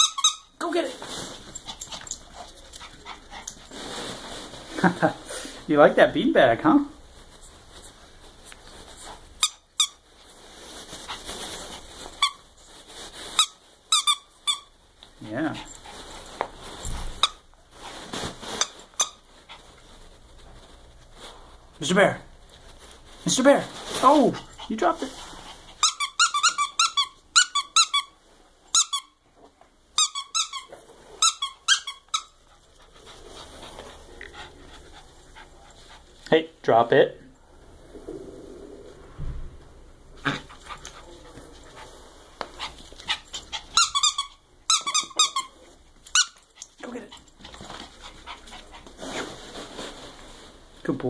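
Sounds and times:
dog toy squeaking: 0.0 - 0.6, 9.4 - 10.0, 13.4 - 14.7, 17.2 - 17.4, 18.6 - 19.2, 25.8 - 29.2, 30.0 - 32.4, 43.1 - 46.4
soft rustling: 0.6 - 25.8, 32.3 - 36.6, 45.4 - 51.0.

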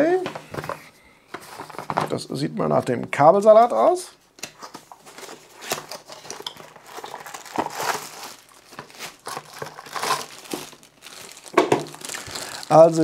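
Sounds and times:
plastic bags crinkling: 5.1 - 13.0.

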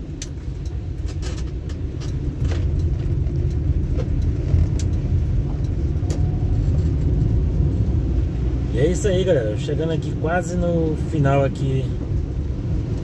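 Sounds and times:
light ticks: 0.0 - 7.9, 11.6 - 13.0
car rumbling on wet road: 0.0 - 13.0.

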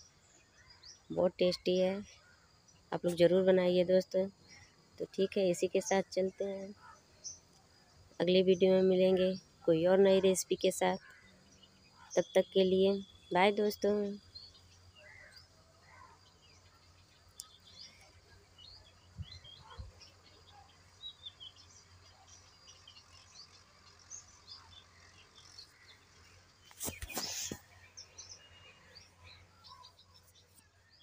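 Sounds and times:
faint birds chirping: 0.0 - 31.0
rustling: 26.6 - 27.8.

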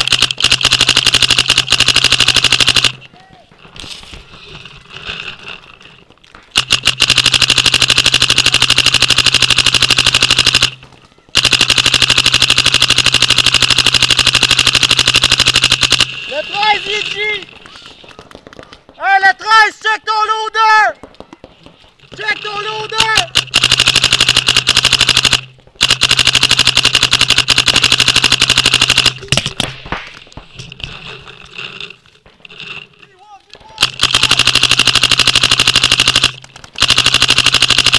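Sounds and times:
paintball marker firing: 0.0 - 3.1, 6.5 - 16.3, 23.0 - 30.6.

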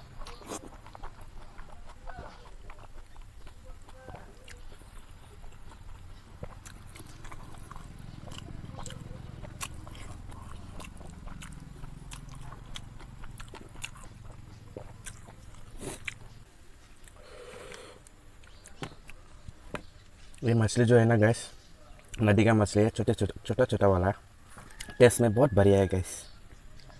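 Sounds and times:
close chewing: 0.0 - 20.9, 21.8 - 23.0, 24.4 - 25.1
wet mouth clicks and lip smacks: 9.6 - 16.4.

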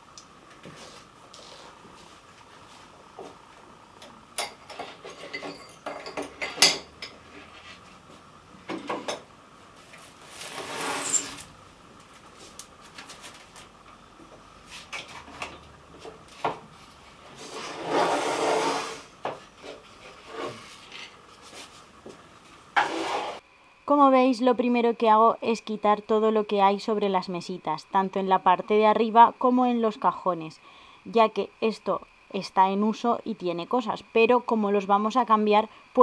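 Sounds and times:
bottles and jars clinking: 4.4 - 7.1
objects sliding on wood: 10.3 - 11.4, 17.3 - 21.8, 22.8 - 23.4.

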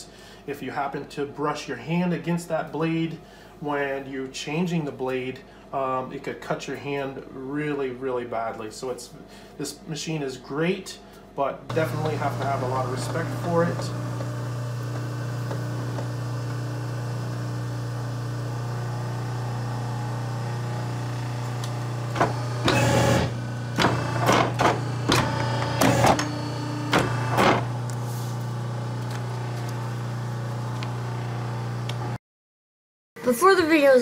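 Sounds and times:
paper cutter motor humming: 11.7 - 32.2.

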